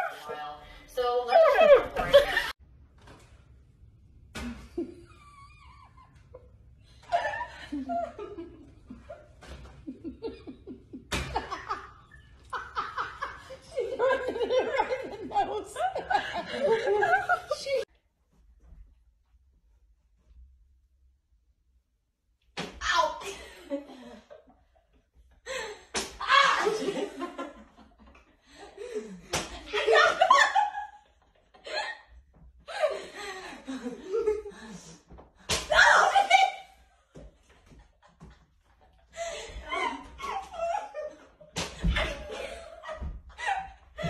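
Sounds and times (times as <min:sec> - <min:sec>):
young women shrieking and laughing: 0:26.2 - 0:27.4, 0:35.6 - 0:36.9, 0:39.2 - 0:41.3.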